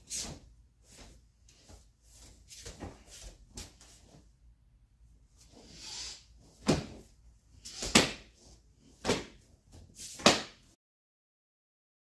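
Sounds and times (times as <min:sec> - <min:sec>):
soft swish: 0:00.0 - 0:04.3
strikes slapping and thudding: 0:06.6 - 0:07.1, 0:07.8 - 0:08.3, 0:09.0 - 0:09.4, 0:10.2 - 0:10.7.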